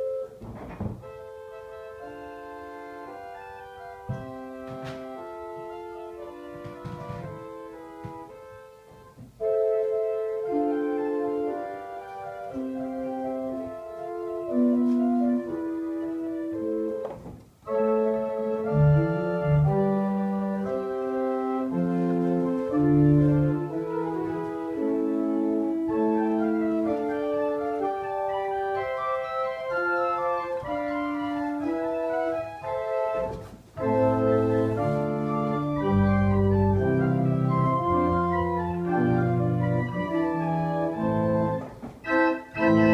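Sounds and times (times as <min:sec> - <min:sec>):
pipe organ playing held chords: 0:00.0 - 0:42.9
deep bass organ notes: 0:17.6 - 0:42.9.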